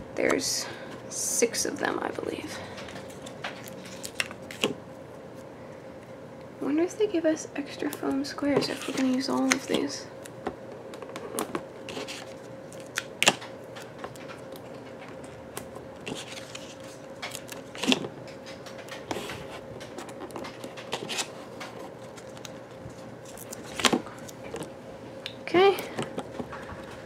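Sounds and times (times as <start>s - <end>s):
faint steady hum: 0.0s - 27.0s
paper rustling: 16.0s - 18.0s.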